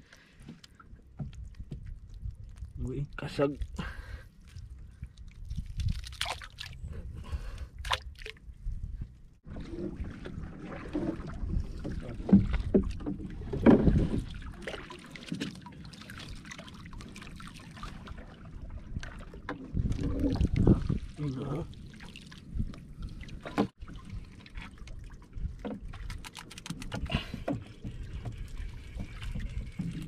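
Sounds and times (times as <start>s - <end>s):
wind rumble on microphone: 1.2s - 14.6s, 17.9s - 21.8s, 22.4s - 26.2s, 26.8s - 30.0s
water splashing: 4.4s - 6.8s, 9.5s - 30.0s
knocks and rattles in boat: 9.5s - 15.9s, 23.4s - 24.0s, 25.4s - 30.0s.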